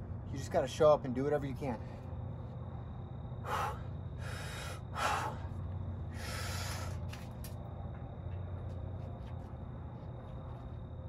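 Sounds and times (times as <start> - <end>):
steady low hum: 0.0 - 11.0
man breathing hard: 3.4 - 7.1.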